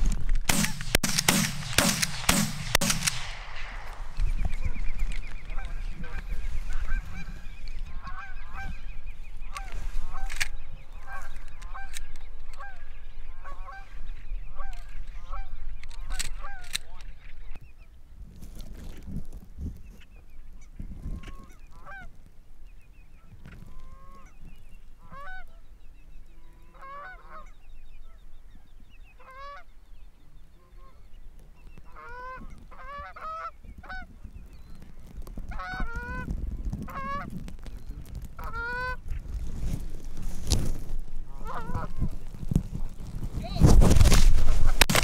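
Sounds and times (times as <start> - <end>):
low rumble: 0.7 - 9.1
goose honking: 5.5 - 8.9, 9.5 - 10.4, 25.0 - 25.5, 26.7 - 27.6, 31.9 - 34.1, 35.5 - 37.3, 38.4 - 39.1, 41.3 - 42.1.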